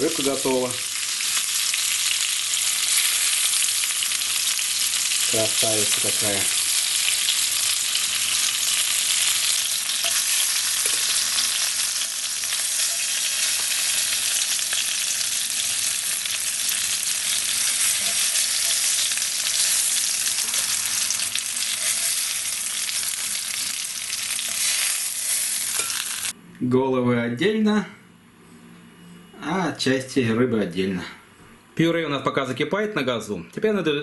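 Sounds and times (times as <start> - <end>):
fish sizzling in oil: 0.0 - 26.3.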